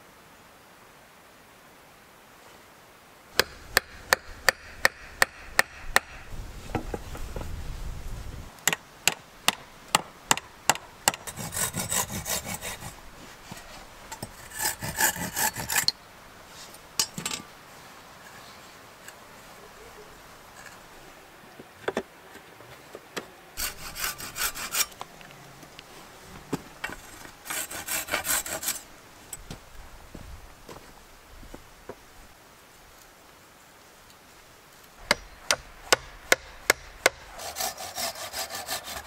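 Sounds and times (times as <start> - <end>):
hatchet knocking on wood: 3.4 - 6.2, 35.0 - 37.2
wooden poles scraping: 10.7 - 17.6, 23.6 - 29.4, 35.0 - 39.0.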